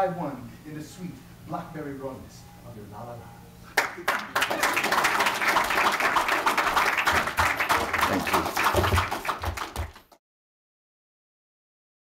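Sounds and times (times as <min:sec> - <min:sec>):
audience applauding: 0:03.8 - 0:10.2.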